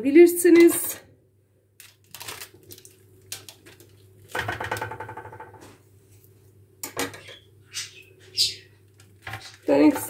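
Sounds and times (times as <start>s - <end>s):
baking paper rustling: 1.8s - 4.0s, 8.9s - 10.0s.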